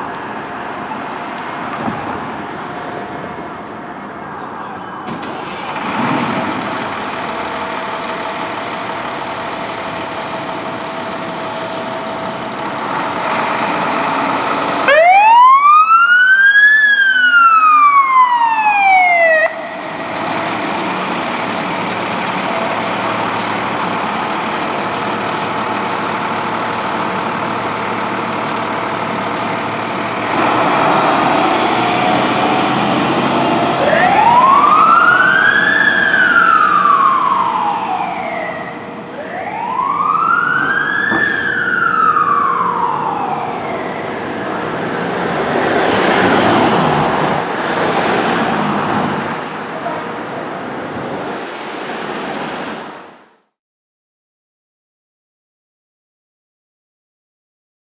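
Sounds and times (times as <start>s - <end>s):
fire engine siren wailing: 2.8s - 50.9s
truck engine running: 5.3s - 15.1s, 19.5s - 38.0s.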